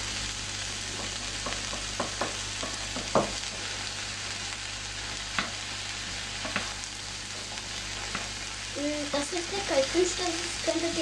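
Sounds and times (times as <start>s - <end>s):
vegetables sizzling in a frying pan: 0.0s - 11.0s
wooden spoon knocking: 1.0s - 3.4s.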